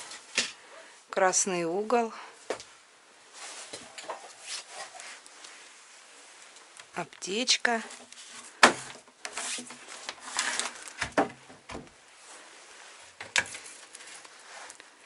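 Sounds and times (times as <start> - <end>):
rummaging rustling: 3.3 - 6.8, 7.7 - 11.5, 12.2 - 15.0.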